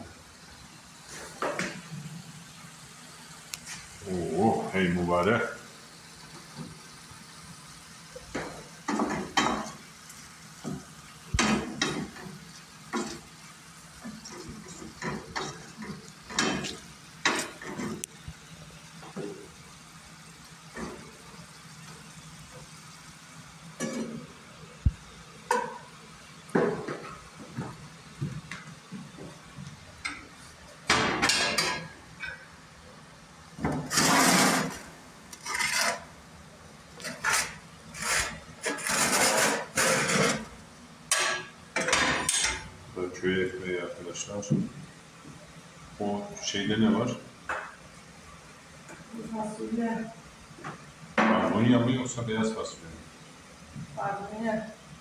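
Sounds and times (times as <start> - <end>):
faint sizzle of food frying: 0.0 - 55.0
utensil stirring and scraping pan: 11.4 - 13.3, 14.0 - 18.1, 33.7 - 36.2, 37.0 - 42.6.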